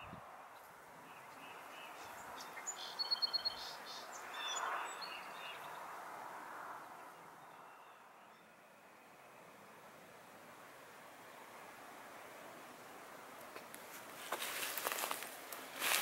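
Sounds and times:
faint outdoor hiss: 0:00.0 - 0:16.0
small bird chirping: 0:00.5 - 0:05.8.

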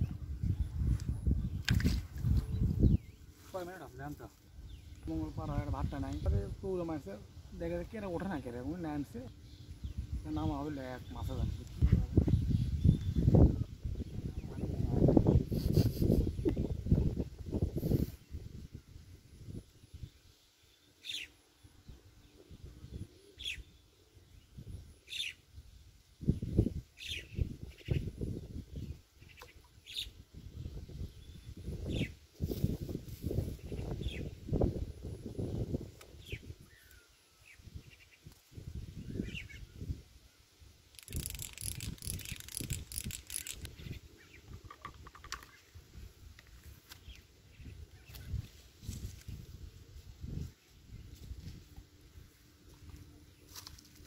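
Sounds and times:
bird chirping: 0:19.4 - 0:25.4, 0:41.0 - 0:45.7
fishing reel gears clicking: 0:40.9 - 0:43.8.

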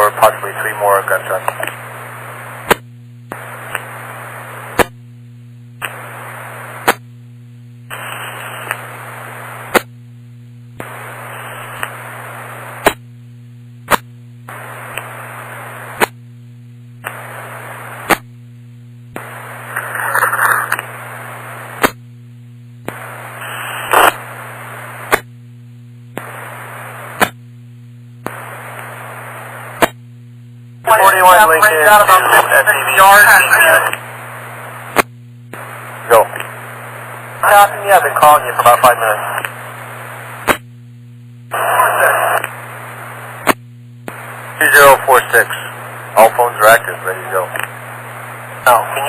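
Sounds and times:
radio static bursts: 0:00.0 - 0:04.9, 0:05.8 - 0:07.0, 0:07.9 - 0:09.9, 0:10.8 - 0:13.0, 0:13.9 - 0:16.2, 0:17.0 - 0:18.3, 0:19.2 - 0:22.0, 0:22.9 - 0:25.3, 0:26.2 - 0:27.4, 0:28.3 - 0:30.0, 0:30.8 - 0:40.6, 0:41.5 - 0:49.0
steady low hum: 0:00.0 - 0:49.0
sharp crack: 0:40.4 - 0:40.6.

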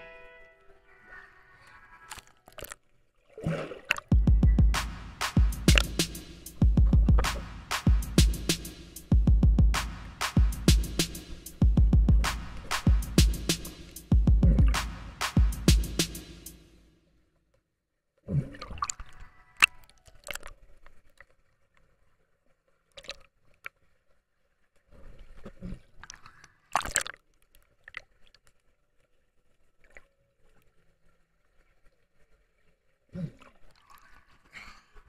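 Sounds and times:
water gurgling and sloshing: 0:02.1 - 0:04.8, 0:06.6 - 0:07.5.

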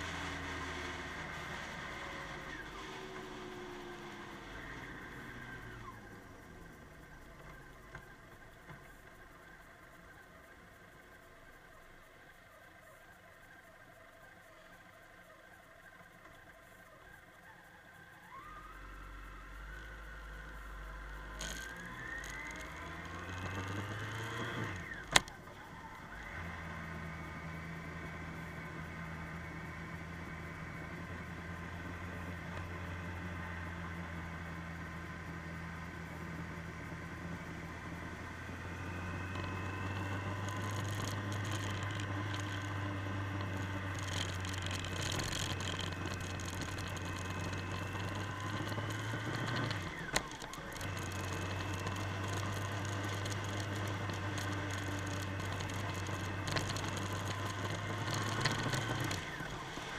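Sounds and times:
motorcycle engine running: 0:00.0 - 0:59.9
click: 0:24.7 - 0:25.6
wind and road rush: 0:34.7 - 0:59.9.

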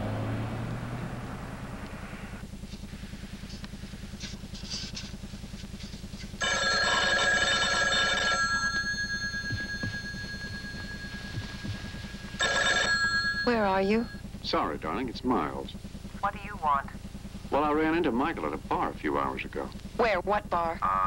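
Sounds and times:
steady low hum: 0:00.0 - 0:21.0
telephone bell ringing: 0:06.4 - 0:14.2.

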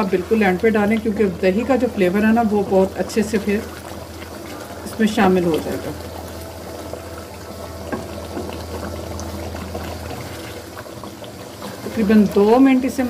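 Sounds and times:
gravy bubbling in a pan: 0:00.0 - 0:13.0
low steady hum: 0:00.0 - 0:13.0
wooden spatula stirring: 0:07.8 - 0:13.0.

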